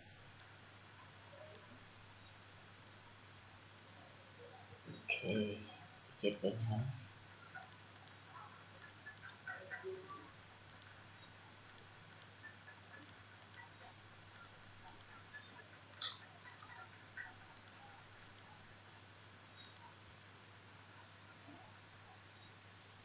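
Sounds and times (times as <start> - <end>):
low steady hum: 0.0 - 23.0
computer mouse clicks: 7.5 - 18.6, 19.6 - 20.0.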